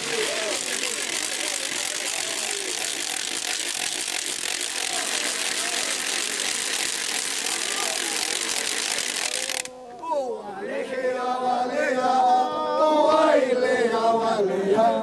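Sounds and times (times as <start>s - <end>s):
wooden ratchets clattering: 0.0s - 9.8s
faint voices: 0.0s - 10.9s.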